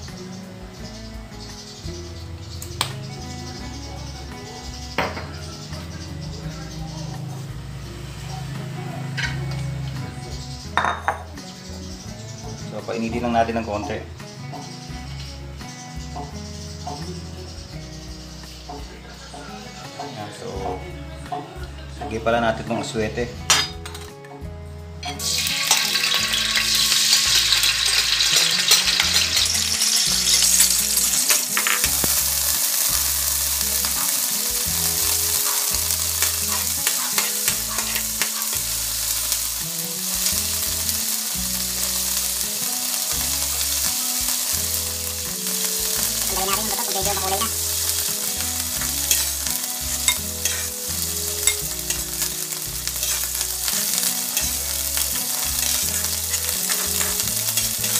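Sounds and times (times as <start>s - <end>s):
seeds sizzling in hot oil: 0.0s - 20.6s, 25.0s - 57.9s
metal spatula scraping a wok: 25.0s - 57.9s.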